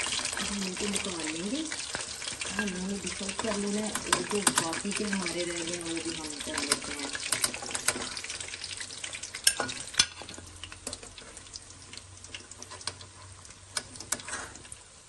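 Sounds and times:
food deep-frying in hot oil: 0.0 - 15.0
metal spoon clinking on pan: 2.4 - 2.9, 9.4 - 10.3.

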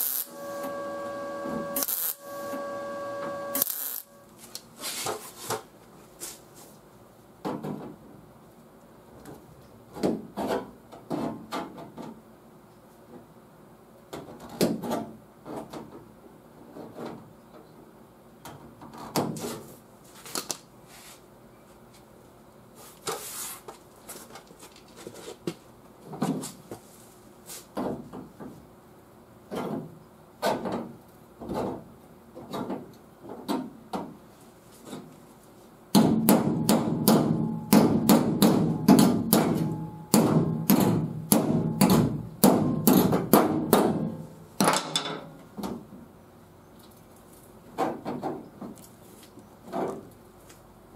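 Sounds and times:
metal snips cutting sheet steel: 0.0 - 0.8, 1.5 - 4.1.

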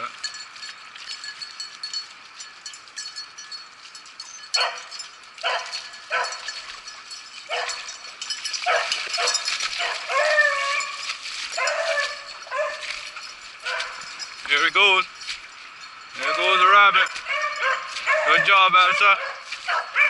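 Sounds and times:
beagles baying: 4.4 - 6.6, 7.4 - 14.4, 15.5 - 20.0.

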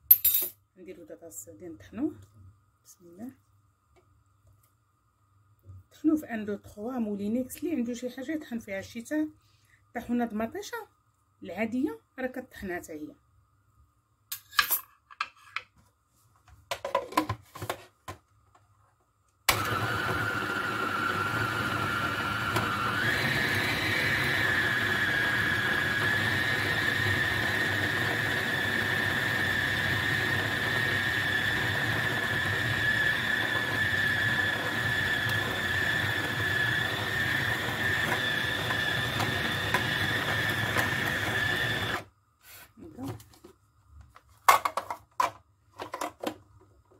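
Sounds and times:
food processor motor whining: 19.5 - 42.1.

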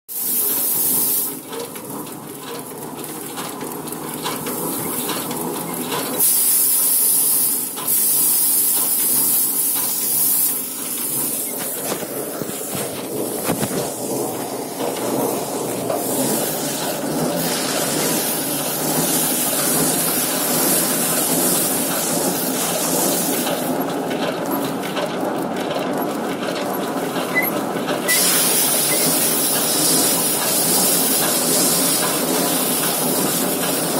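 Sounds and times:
steady mechanical rattle: 0.1 - 33.9
thresher drum spinning: 0.1 - 33.9
hissing rush of grain and straw: 15.3 - 23.6.

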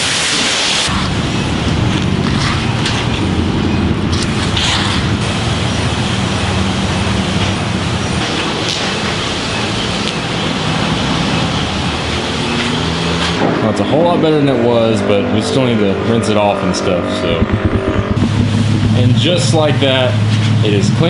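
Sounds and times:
steady motor hum: 16.8 - 21.0.

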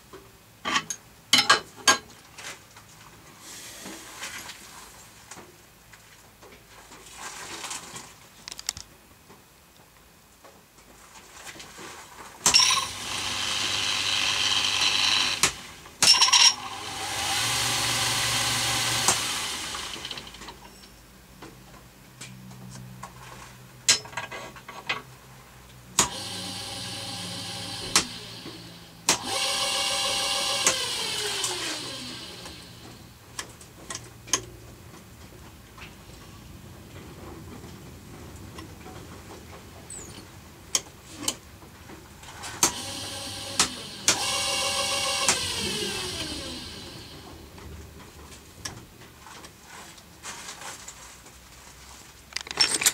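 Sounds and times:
drill press motor running: 12.5 - 20.4, 26.0 - 33.0, 42.6 - 47.6
falling whine of spindle: 26.2 - 33.0, 42.7 - 47.6.

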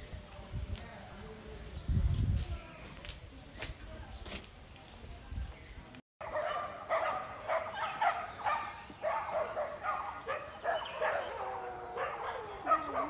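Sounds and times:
dog barking and yipping: 6.2 - 13.0.

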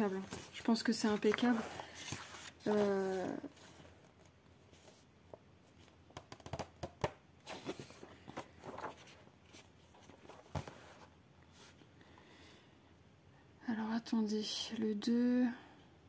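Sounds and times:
paper rustling: 0.1 - 5.1, 7.4 - 11.8.

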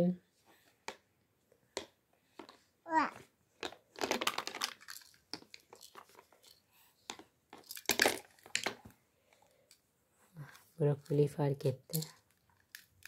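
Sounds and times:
toy pieces rustling and clicking: 3.6 - 8.8, 11.9 - 13.0.

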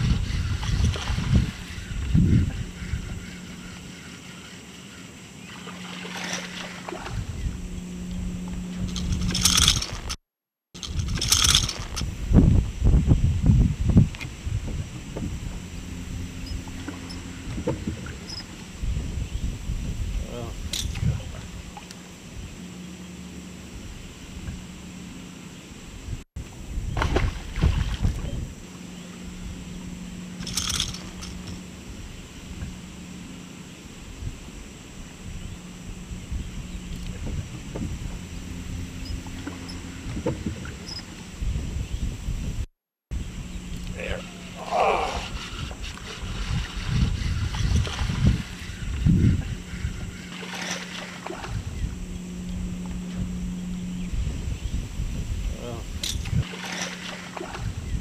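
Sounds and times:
steady low hum: 0.0 - 10.2, 10.8 - 58.0
fish splashing at the surface: 5.5 - 7.1, 56.4 - 57.7
knocks and thumps on boat deck: 16.8 - 18.3, 37.1 - 38.0, 39.3 - 40.8.

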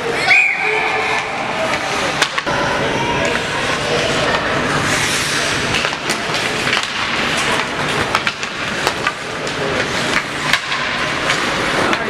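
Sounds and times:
sticks and puck clacking: 0.0 - 12.0
skates hissing on ice: 4.7 - 6.6.

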